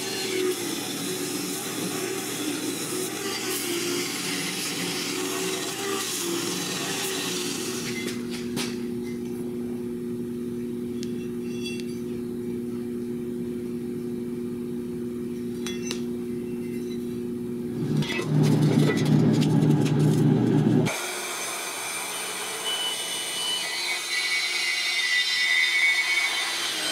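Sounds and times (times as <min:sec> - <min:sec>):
belt grinder on steel: 0:00.0 - 0:08.5, 0:20.8 - 0:26.9
band saw cutting steel: 0:00.0 - 0:08.8, 0:20.8 - 0:26.9.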